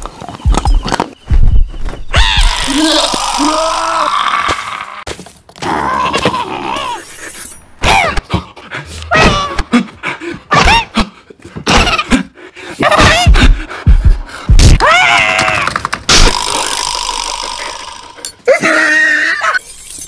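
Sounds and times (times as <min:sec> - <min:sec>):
vocal cries and squeals: 0:02.1 - 0:08.3.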